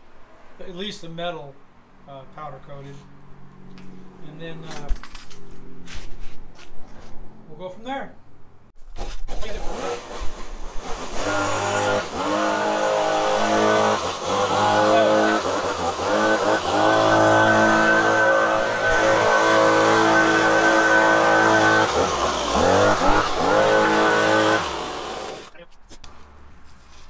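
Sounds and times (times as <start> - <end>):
leaf blower running: 9.0 - 25.5.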